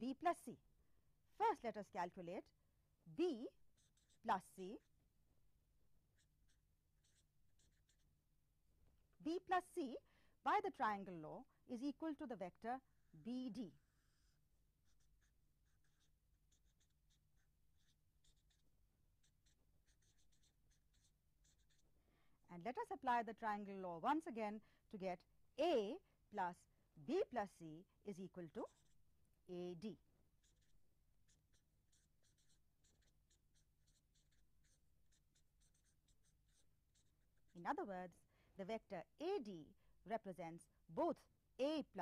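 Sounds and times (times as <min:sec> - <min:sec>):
pen scratching strokes: 0:03.6 - 0:04.9, 0:06.1 - 0:08.2, 0:13.8 - 0:21.9, 0:30.3 - 0:37.8.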